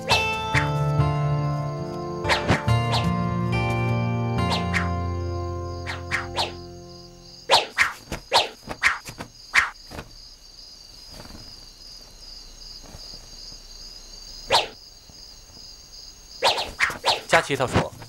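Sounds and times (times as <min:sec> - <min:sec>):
crickets chirping: 0:00.0 - 0:18.0
sword swishing through air: 0:05.9 - 0:06.6, 0:07.5 - 0:09.8, 0:14.5 - 0:14.8, 0:16.4 - 0:17.3.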